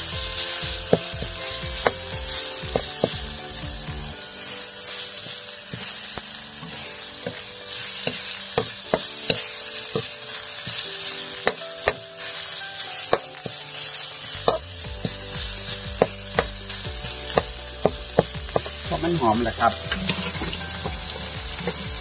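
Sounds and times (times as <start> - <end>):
aromatics sizzling in hot oil: 0.0 - 22.0
metal spatula scraping wok: 19.8 - 20.8.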